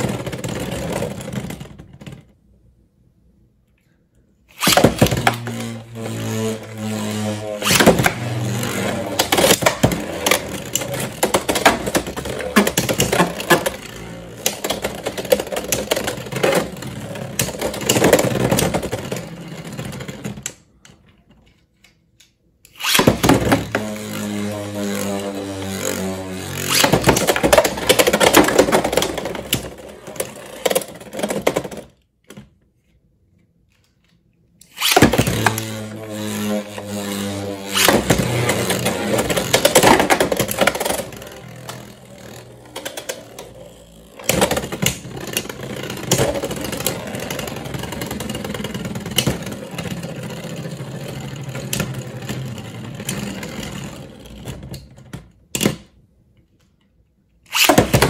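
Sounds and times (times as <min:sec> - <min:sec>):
spinning tops whirring and grinding: 0:04.5 - 0:20.4, 0:22.7 - 0:31.8, 0:34.6 - 0:54.6.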